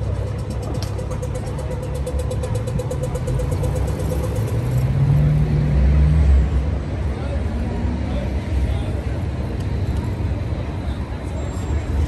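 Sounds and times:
vehicle engine pulling away: 0:02.5 - 0:06.8.

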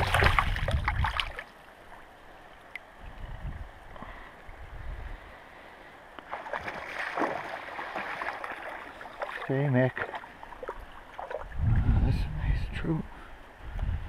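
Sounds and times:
water splashing in a river: 0:00.0 - 0:03.0, 0:06.2 - 0:11.6
running water rushing: 0:00.0 - 0:04.6, 0:06.1 - 0:11.7.

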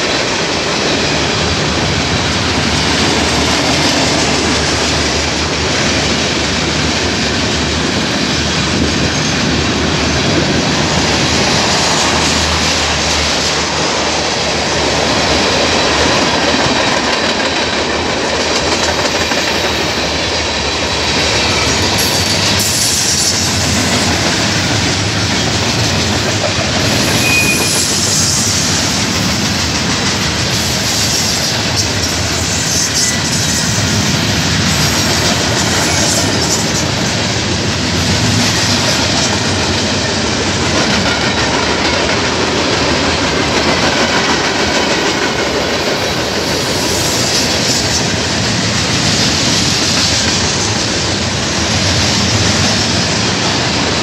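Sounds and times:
clickety-clack over rail joints: 0:00.0 - 0:54.0
train wheels rumbling on rails: 0:00.0 - 0:54.0
high wheel squeal: 0:21.2 - 0:23.8, 0:26.8 - 0:28.8, 0:30.6 - 0:37.2.

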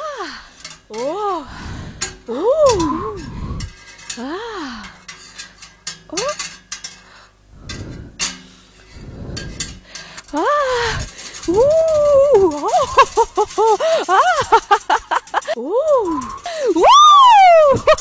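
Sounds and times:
metallic clinks and knocks: 0:02.0 - 0:18.0
whooping cries: 0:11.5 - 0:13.2, 0:15.6 - 0:18.0.

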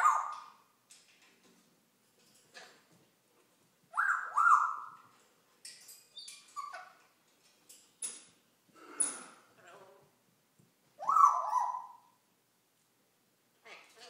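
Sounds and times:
parrot clicks and squeaks: 0:03.9 - 0:07.1
parrot whooping: 0:04.0 - 0:05.0, 0:11.0 - 0:12.0.

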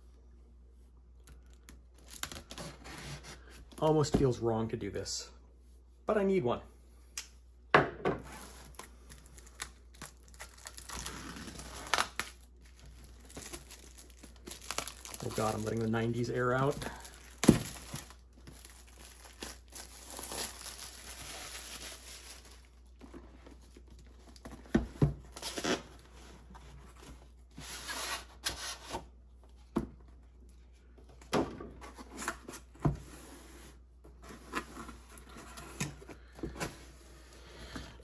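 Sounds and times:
plastic shrink-wrap tearing: 0:09.2 - 0:22.7.

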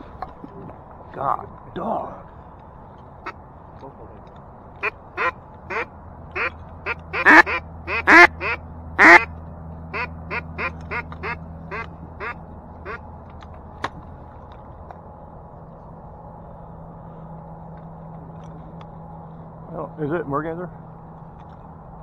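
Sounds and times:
duck quacking: 0:04.8 - 0:09.3, 0:09.9 - 0:13.0.

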